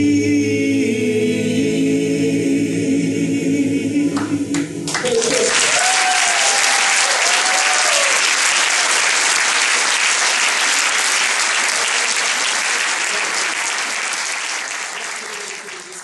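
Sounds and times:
audience applauding: 0:04.2 - 0:16.0.

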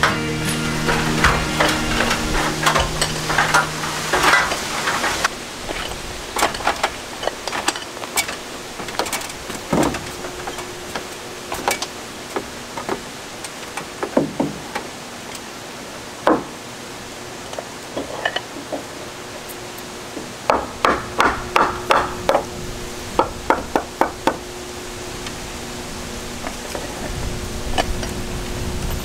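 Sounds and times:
knocks and taps of wood: 0:14.0 - 0:14.9.

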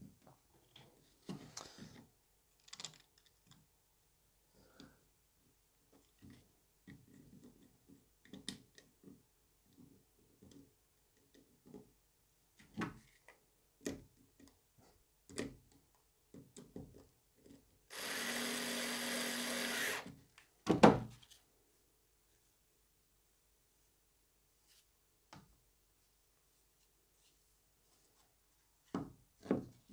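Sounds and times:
cordless screwdriver humming: 0:17.9 - 0:20.1.

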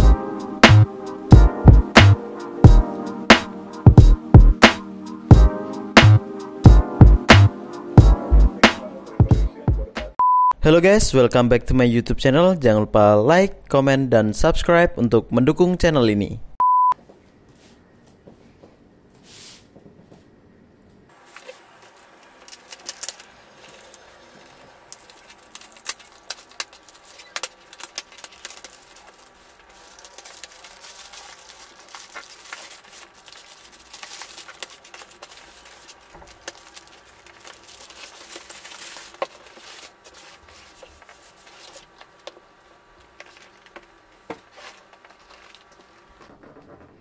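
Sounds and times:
plastic wrapping crinkling: 0:21.2 - 0:46.8.

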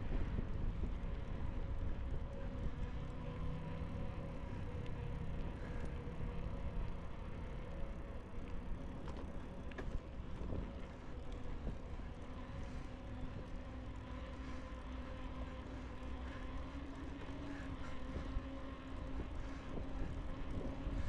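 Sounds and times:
faint steady hum: 0:00.0 - 0:21.0
wind on microphone: 0:19.2 - 0:21.0.

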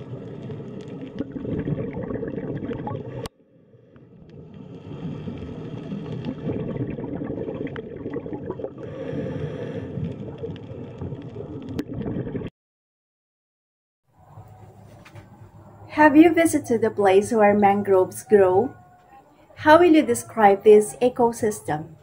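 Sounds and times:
underwater rush of water: 0:00.0 - 0:03.3, 0:03.9 - 0:12.5
water gurgling: 0:00.0 - 0:12.5.

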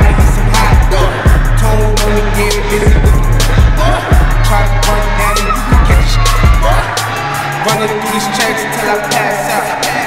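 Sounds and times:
hip hop music with vocals: 0:00.0 - 0:10.0.

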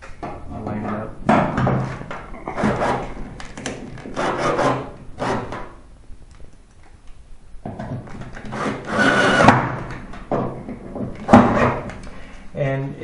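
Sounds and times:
cordless drill driving screw: 0:08.5 - 0:09.6.

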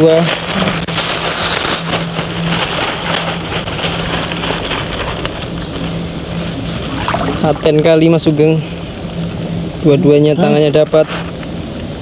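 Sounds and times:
crackly patter: 0:00.0 - 0:12.0
steady low hum: 0:00.0 - 0:12.0
muddy water splashing: 0:05.8 - 0:08.4.

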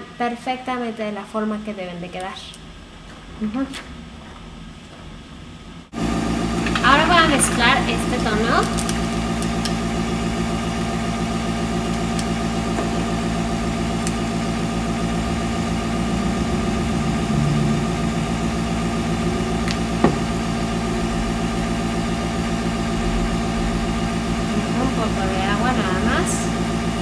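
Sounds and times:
compressor motor humming: 0:05.9 - 0:27.0.

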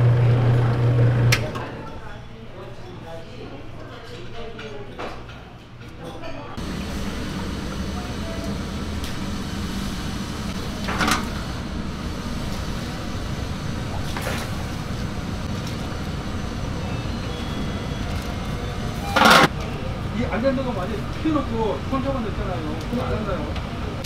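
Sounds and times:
low kitchen rumble: 0:00.0 - 0:01.9, 0:06.6 - 0:24.0.

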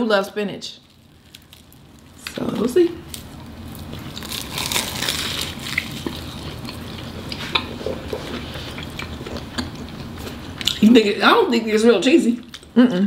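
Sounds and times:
crunchy pastry chewing: 0:00.8 - 0:10.8.

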